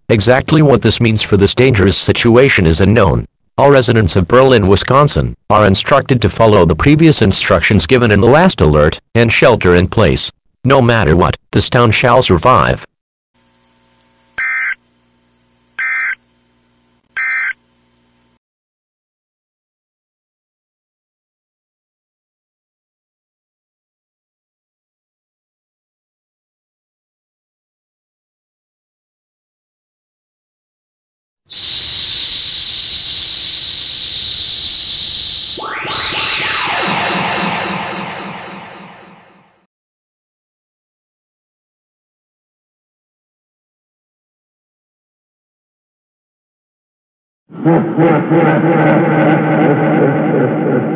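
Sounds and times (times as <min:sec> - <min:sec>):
harsh digital warbles: 0:31.5 - 0:39.6
rising and falling sweep: 0:31.5 - 0:39.6
synthetic whoosh with high whistle: 0:31.5 - 0:39.7.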